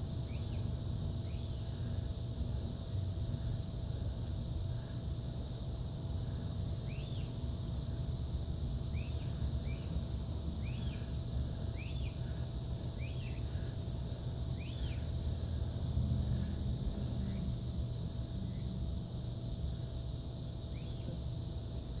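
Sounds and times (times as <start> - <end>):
bird chirping: 0.2 - 1.8, 6.8 - 7.4, 8.9 - 10.0, 10.6 - 13.7, 14.4 - 15.1, 20.6 - 21.2.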